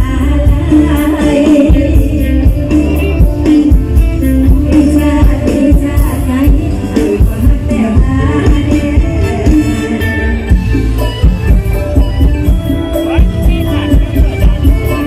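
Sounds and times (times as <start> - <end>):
woman singing: 0.0 - 10.5
electric guitar: 0.0 - 15.0
keyboard: 0.0 - 15.0
upbeat live band music: 0.0 - 15.0.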